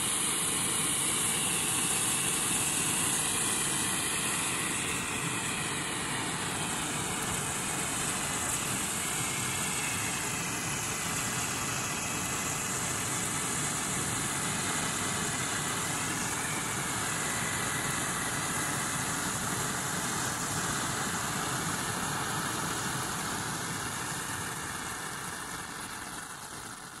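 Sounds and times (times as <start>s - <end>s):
hand flare hissing: 0.0s - 17.2s.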